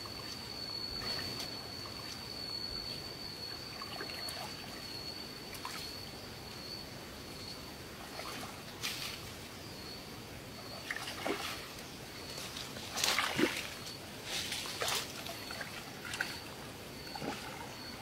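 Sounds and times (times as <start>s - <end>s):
steady high-pitched whine: 0.0s - 18.0s
muddy water splashing: 10.7s - 18.0s.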